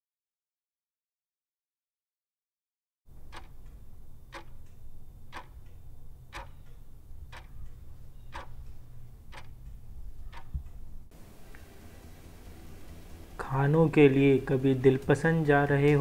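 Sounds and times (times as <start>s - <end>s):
steady low rumble: 3.1s - 16.0s
clock-like ticks: 3.2s - 10.8s.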